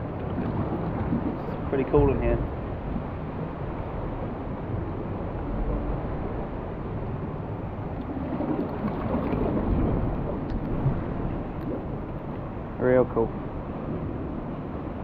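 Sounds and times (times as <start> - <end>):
wind buffeting microphone: 0.0 - 15.0
sea water washing against rock: 7.9 - 12.8.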